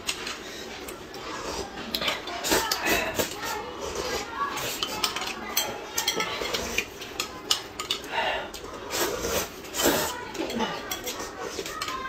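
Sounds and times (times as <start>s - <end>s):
noodles slurped and chewed: 0.0s - 12.0s
utensils clinking on plate and mug: 4.6s - 8.1s, 9.7s - 12.0s.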